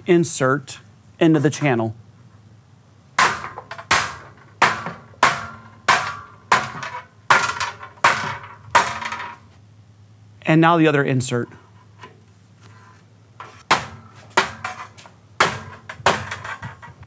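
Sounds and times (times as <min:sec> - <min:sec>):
rubber mallet tapping aluminum frame: 0:03.2 - 0:09.3, 0:13.4 - 0:17.0.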